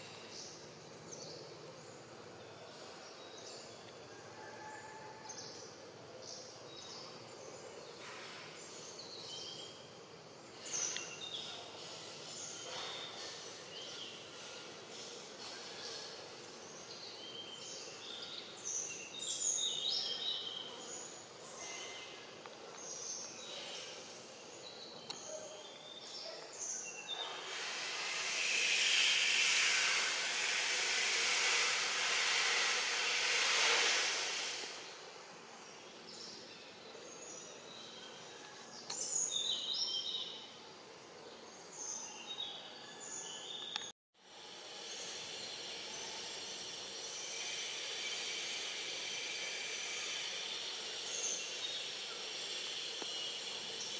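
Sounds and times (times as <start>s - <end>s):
cicadas buzzing: 5.6s - 25.3s, 26.6s - 37.4s, 43.4s - 53.9s.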